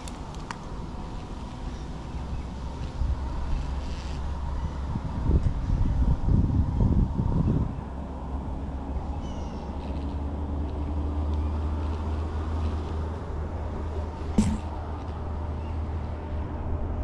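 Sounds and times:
sharp knock: 14.4s - 14.7s.

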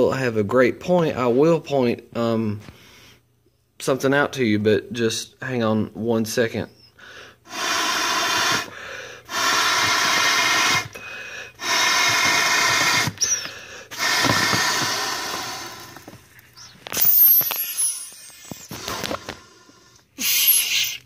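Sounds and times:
breaths blowing into a valve: 7.2s - 21.0s.

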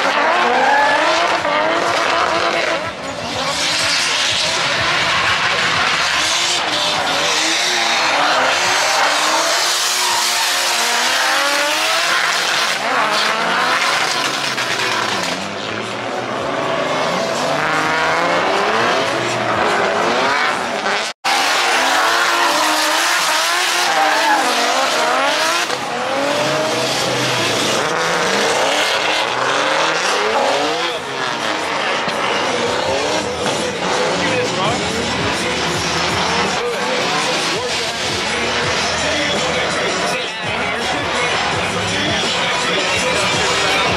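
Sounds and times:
car engines revving: 0.0s - 43.9s
tyres squealing: 21.3s - 29.4s.

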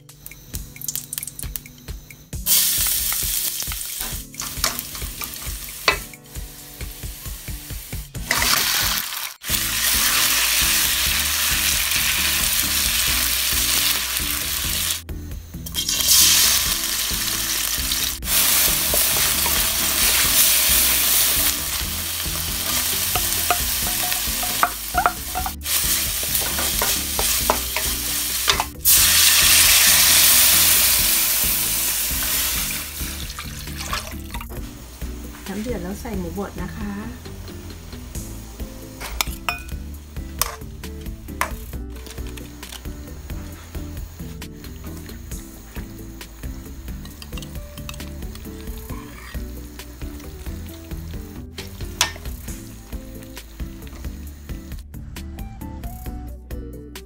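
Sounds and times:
garlic sizzling in hot oil: 2.4s - 15.0s, 15.6s - 54.7s
water hissing in hot wok: 2.4s - 15.0s, 15.7s - 54.8s
wooden spatula stirring: 18.3s - 28.7s, 48.6s - 49.4s.

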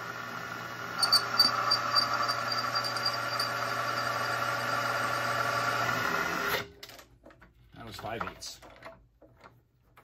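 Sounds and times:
milling machine drilling cast iron: 0.0s - 6.6s.

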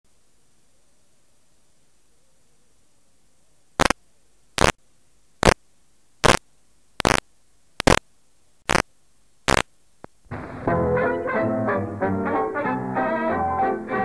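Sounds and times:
low hiss: 0.1s - 14.0s
loud bursts of noise: 4.6s - 4.8s, 7.0s - 7.2s, 7.8s - 8.0s, 9.5s - 9.7s
brass dance-band music: 10.4s - 14.0s.

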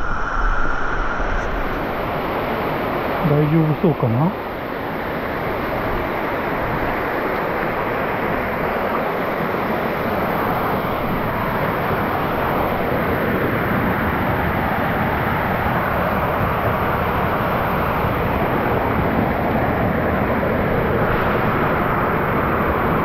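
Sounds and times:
stream water rushing: 1.6s - 14.1s.

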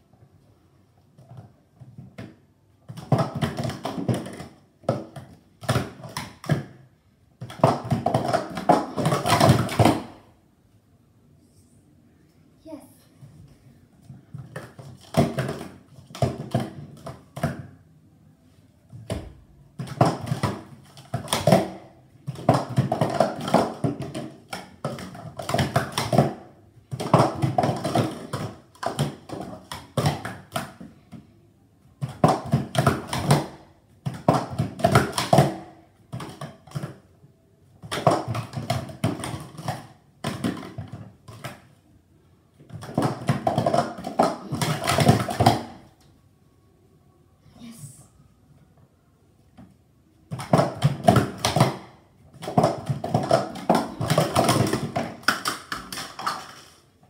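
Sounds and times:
plastic cups clattering: 7.4s - 10.1s, 19.8s - 30.9s, 37.8s - 41.7s, 42.6s - 45.8s, 50.3s - 57.0s.

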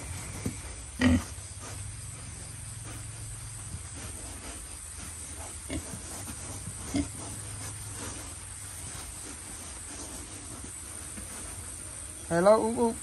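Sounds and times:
pig grunting: 0.9s - 1.3s.

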